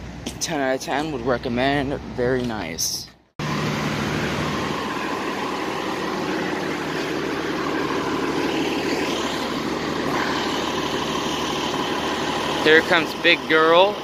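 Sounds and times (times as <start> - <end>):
bus engine idling: 0.0 - 14.0
low hum: 3.4 - 14.0.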